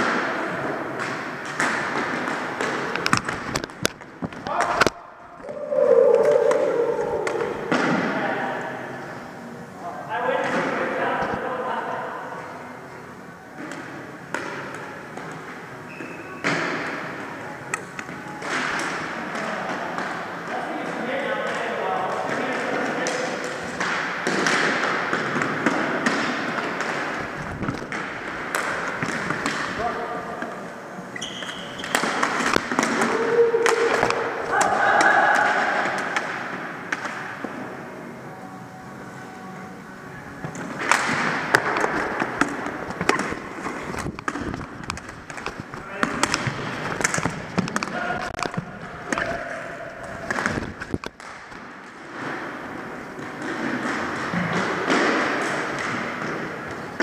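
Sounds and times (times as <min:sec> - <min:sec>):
echoing hall noise: 0:00.0 - 0:57.0
steady rushing noise: 0:22.6 - 0:31.1
sticks and ball clacking on floor: 0:40.4 - 0:52.3.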